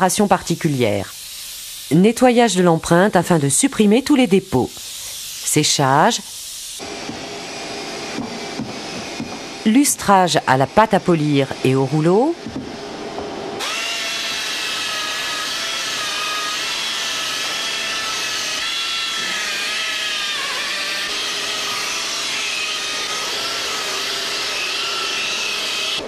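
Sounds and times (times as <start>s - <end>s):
rotary polisher whining: 6.8s - 26.0s.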